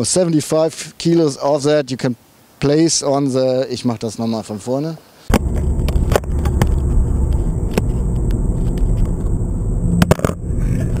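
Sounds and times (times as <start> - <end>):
car engine and road noise: 5.3 - 11.0.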